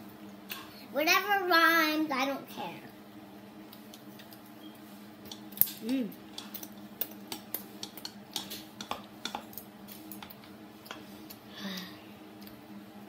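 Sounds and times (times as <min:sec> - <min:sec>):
faint steady hum: 0:00.0 - 0:13.0
chopsticks clicking on bowls: 0:05.3 - 0:11.0.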